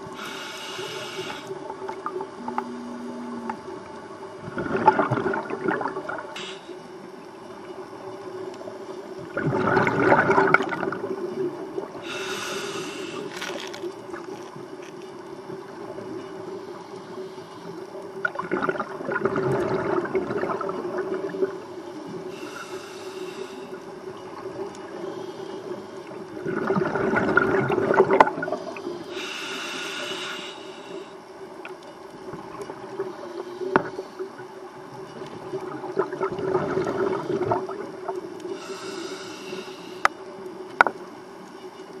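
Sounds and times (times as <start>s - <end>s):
regulator inhale hiss: 0.0s - 1.7s, 6.3s - 7.0s, 12.0s - 13.8s, 16.5s - 18.0s, 22.0s - 24.0s, 28.7s - 31.3s, 38.4s - 40.4s
steady hum: 0.0s - 13.9s, 35.8s - 41.8s
exhaled bubbles rushing: 1.7s - 6.4s, 9.2s - 12.0s, 18.2s - 21.6s, 26.3s - 28.8s, 35.4s - 38.2s.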